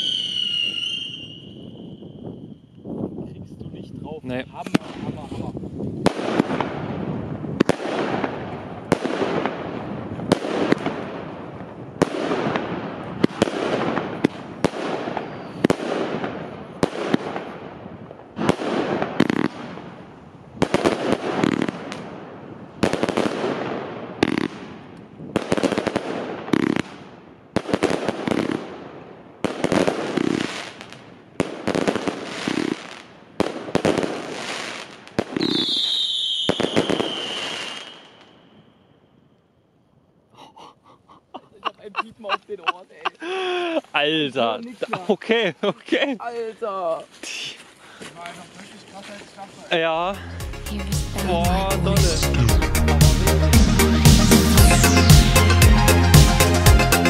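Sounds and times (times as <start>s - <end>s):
high falling whistle: 0.0s - 2.8s.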